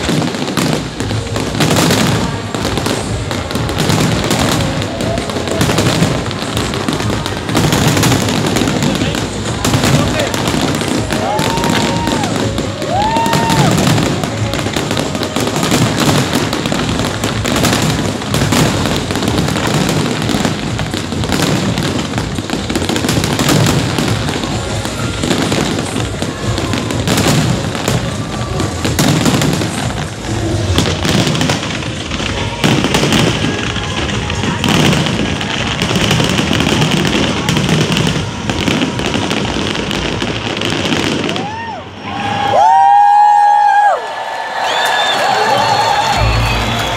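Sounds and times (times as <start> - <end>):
fireworks bangs and crackling: 0.0 - 46.9.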